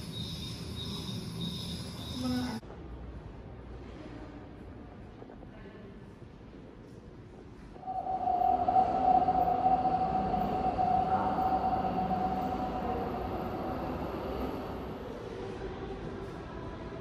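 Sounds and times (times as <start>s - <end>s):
steady high electronic hum: 7.8s - 15.4s
low rumble: 7.8s - 15.6s.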